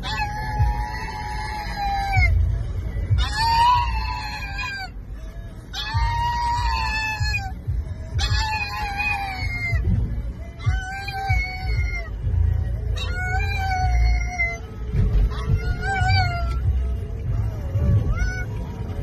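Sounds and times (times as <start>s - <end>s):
dog howling in high wails: 0.0s - 2.4s, 3.1s - 4.9s, 5.7s - 7.5s, 8.2s - 9.8s, 10.6s - 12.1s, 13.0s - 14.6s, 15.3s - 16.7s
car rumble: 0.0s - 19.0s.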